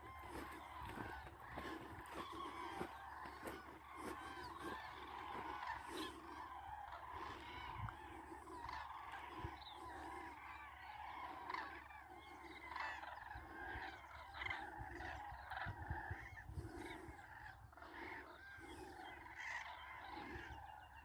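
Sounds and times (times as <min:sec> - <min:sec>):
cranes trumpeting calls: 0:00.0 - 0:21.0
wind rumbling on microphone: 0:14.4 - 0:17.8.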